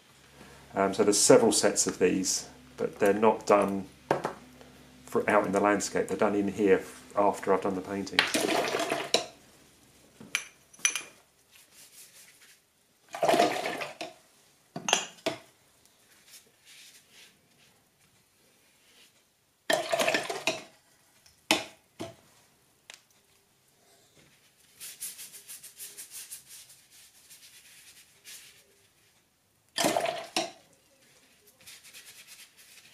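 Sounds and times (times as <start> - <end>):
brush scratching on paper: 11.5 - 12.6, 16.1 - 17.7, 24.4 - 29.1, 30.9 - 32.9
brush swishing in water: 30.9 - 32.9.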